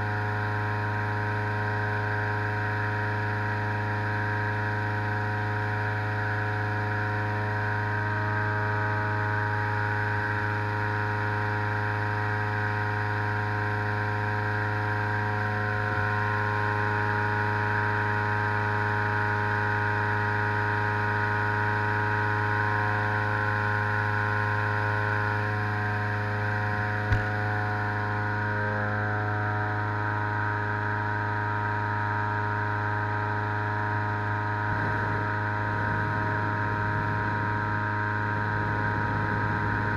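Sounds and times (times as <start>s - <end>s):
inflator fan engine running: 0.0s - 39.9s.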